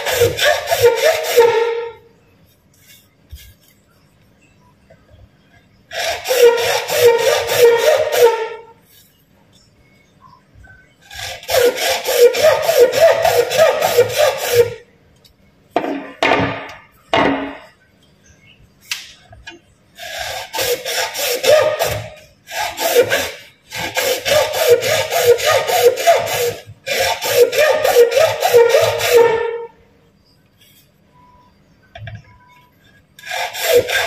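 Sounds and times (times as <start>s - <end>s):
hand tool stroking plastic pipe: 0.0s - 2.0s, 5.9s - 9.2s, 11.1s - 14.8s, 20.0s - 29.8s, 32.9s - 34.0s.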